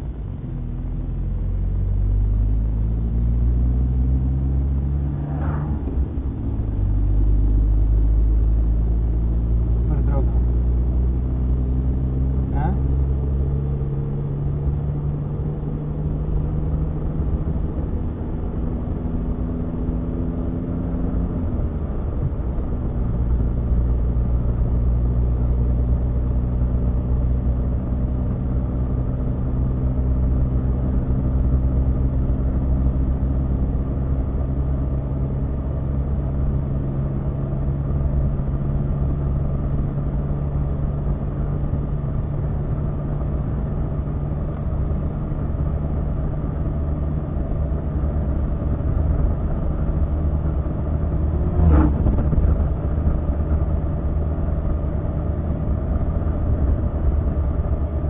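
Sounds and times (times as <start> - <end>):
car engine and road noise: 0.0 - 58.0.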